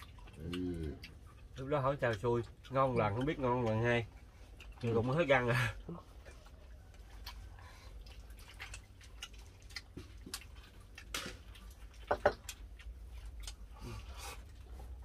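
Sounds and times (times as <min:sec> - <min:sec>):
clicks and taps of eating: 0:00.0 - 0:14.6
low steady hum: 0:00.0 - 0:15.0.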